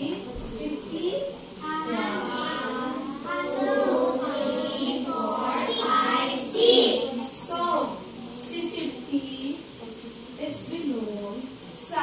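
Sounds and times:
children chanting in unison: 1.6 - 7.4.

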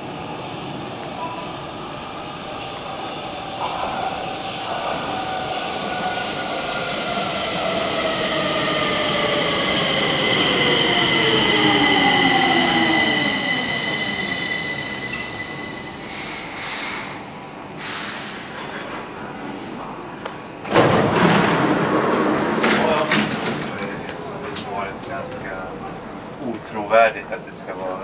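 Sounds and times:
wheel squeal: 11.6 - 22.2.

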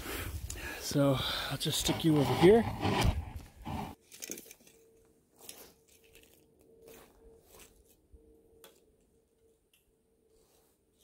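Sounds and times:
footsteps crunching in snow: 5.4 - 8.0.

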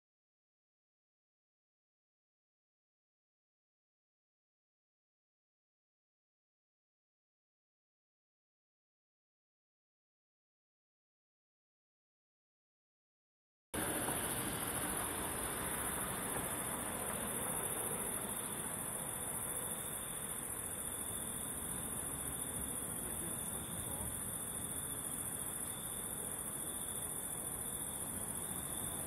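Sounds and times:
crickets trilling: 13.8 - 29.0
low background hiss: 13.8 - 29.0.

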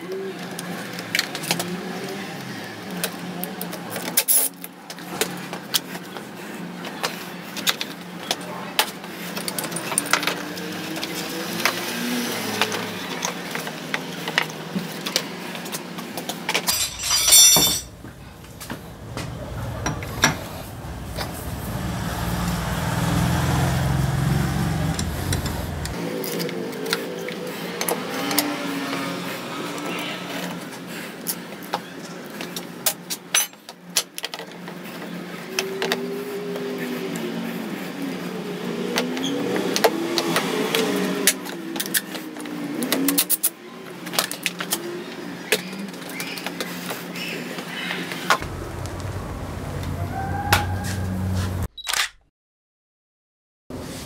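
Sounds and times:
tools and metal parts clattering: 16.5 - 20.8, 33.3 - 34.5.

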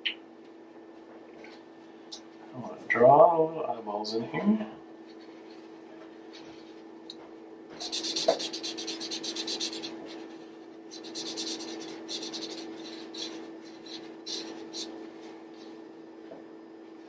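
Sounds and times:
marker scribbling on paper: 7.8 - 15.0.

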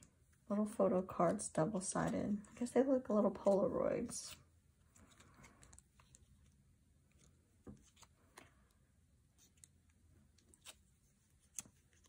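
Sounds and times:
paper cards rustling and clicking: 3.3 - 12.0.

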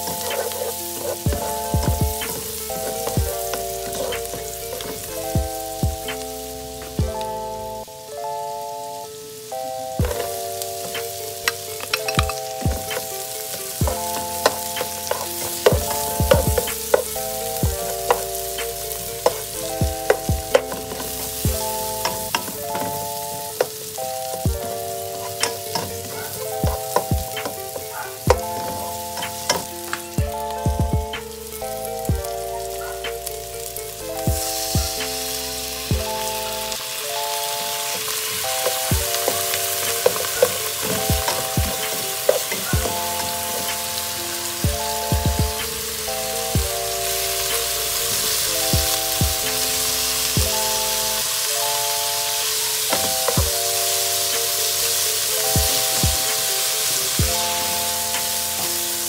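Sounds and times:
spatula scraping a pan: 0.0 - 5.7, 10.1 - 30.2, 36.1 - 46.2
onion and garlic sizzling in oil: 0.0 - 59.0
simple tune of held notes: 0.0 - 59.0.

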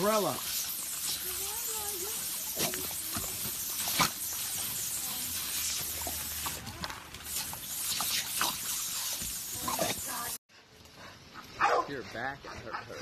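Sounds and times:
hose nozzle spraying mist: 0.0 - 10.4.

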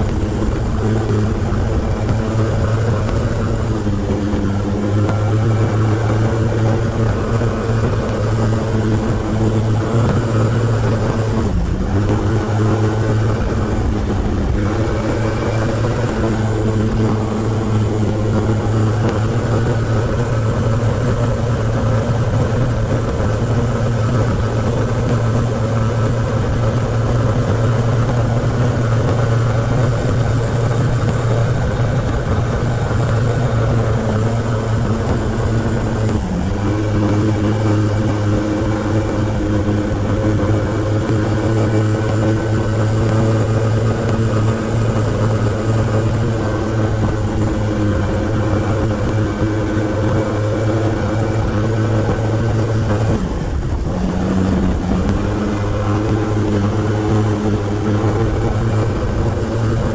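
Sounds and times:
motorcycle engine droning: 0.0 - 59.9.

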